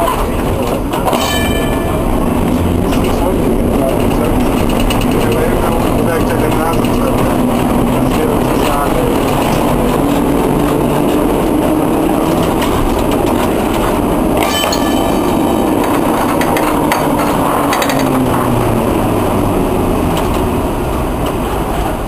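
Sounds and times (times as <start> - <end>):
tram running noise with hum: 0.0 - 22.0
clicking and rattling: 2.8 - 18.5.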